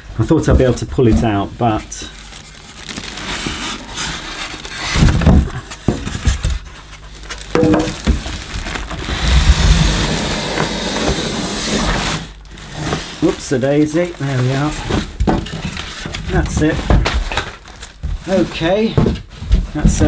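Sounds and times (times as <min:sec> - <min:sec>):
plastic wrapping crinkling: 0:00.7 - 0:20.0
cardboard box scraping: 0:02.8 - 0:17.0.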